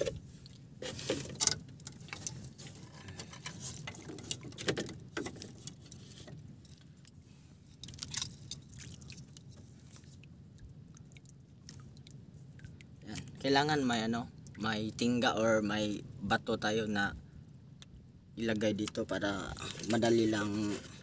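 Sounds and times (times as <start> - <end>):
fishing gear clicking and rustling: 0.0 - 10.1.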